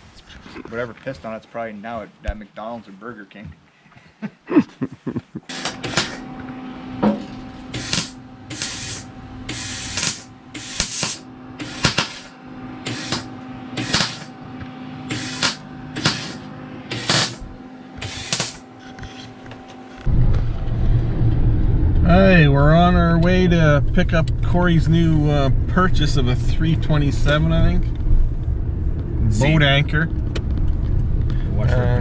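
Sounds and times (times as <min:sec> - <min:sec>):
electrical hum: 0:04.5 - 0:32.0
welder crackling: 0:05.5 - 0:14.4, 0:15.1 - 0:20.1.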